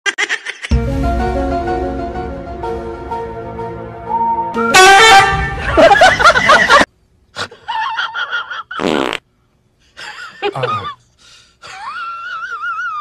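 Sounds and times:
fart sound effects: 8.8 - 9.2.

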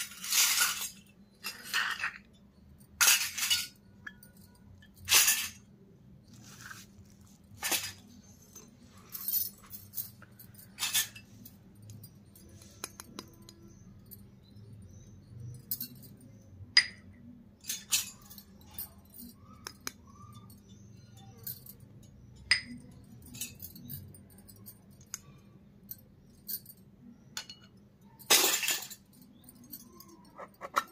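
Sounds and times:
light metallic clinks: 0.0 - 30.9.

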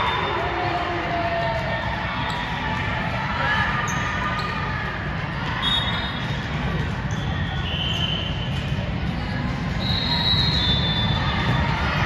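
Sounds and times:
crowd voices: 0.0 - 12.0
sneakers squeaking on gym floor: 3.8 - 4.7, 5.6 - 8.8.

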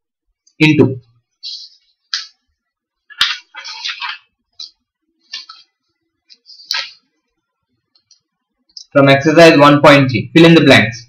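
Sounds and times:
notebook page rustling: 3.1 - 4.3, 6.3 - 7.0.

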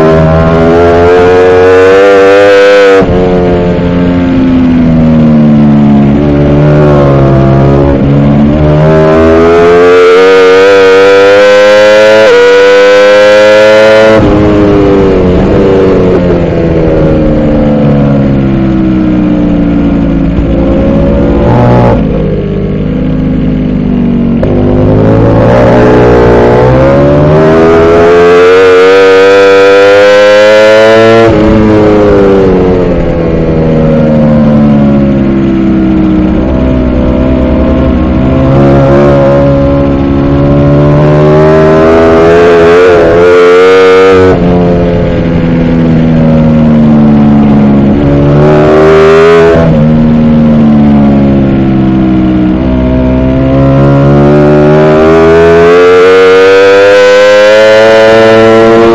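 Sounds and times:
motorcycle engine revving: 0.0 - 58.9.

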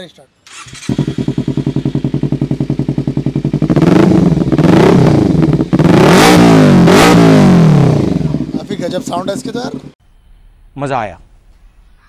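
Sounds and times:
motorcycle engine idling and revving: 0.5 - 10.0.

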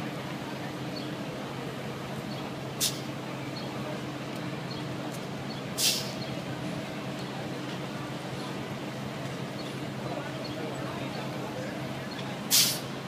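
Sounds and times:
bus idling hum: 0.0 - 13.0
street traffic: 0.0 - 13.0
air brake hisses: 2.8 - 3.1, 5.8 - 6.2, 12.5 - 12.9.

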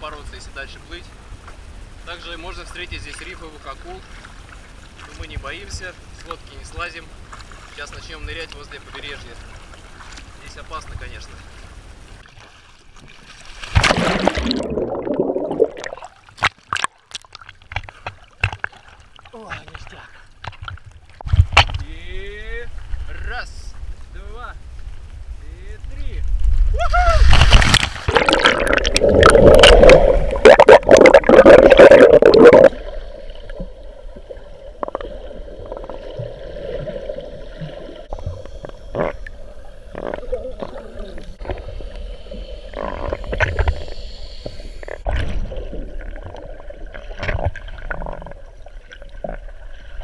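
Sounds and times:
faint steady hum: 0.0 - 50.0
underwater bubbling and gurgling: 8.8 - 19.4, 26.5 - 50.0
small water splashes: 12.2 - 21.5
splash of swimmer entering water: 13.3 - 14.6.

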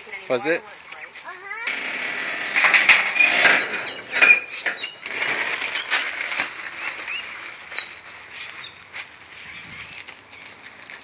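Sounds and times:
high rising chirps: 1.7 - 8.0
dry leaves rustling and crunching: 5.3 - 11.0.

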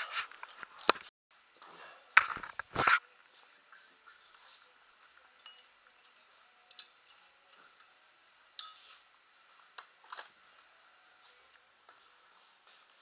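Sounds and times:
small metal tools clinking: 5.4 - 8.0, 8.6 - 9.0.

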